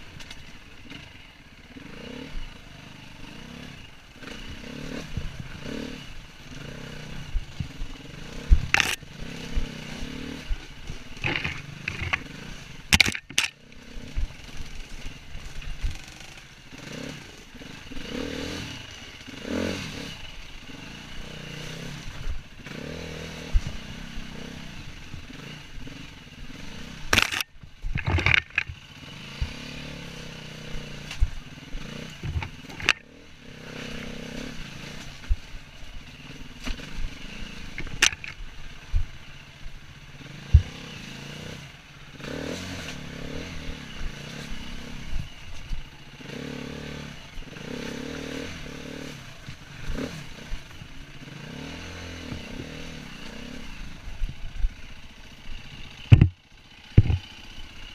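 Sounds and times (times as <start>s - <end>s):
dirt bike engine revving: 0.0s - 57.9s
bike knocking against rocks: 11.2s - 12.3s, 12.9s - 13.6s, 27.1s - 28.8s, 37.8s - 38.4s, 56.1s - 57.3s.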